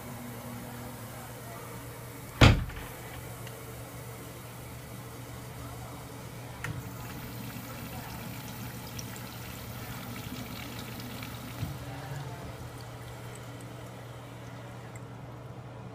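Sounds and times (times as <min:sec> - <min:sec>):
water rushing down bowl: 0:06.8 - 0:15.0.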